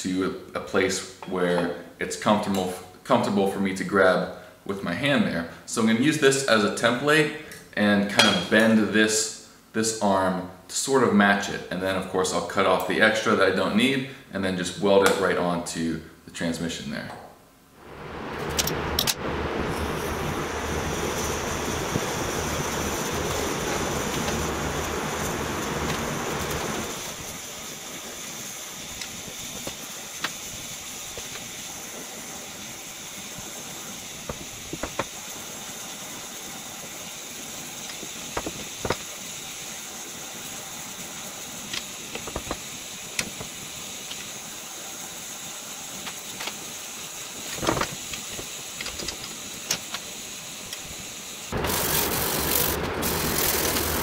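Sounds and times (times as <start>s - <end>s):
gas torch flame hissing: 17.8s - 54.0s.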